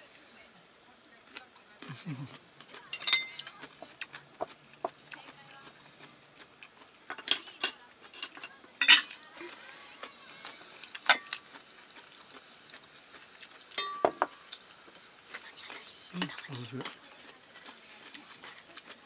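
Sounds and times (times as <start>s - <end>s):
dishes and utensils clinking: 2.7s - 3.7s, 7.0s - 9.2s, 10.0s - 11.6s, 13.7s - 14.7s
short ringing clink: 13.8s - 14.2s.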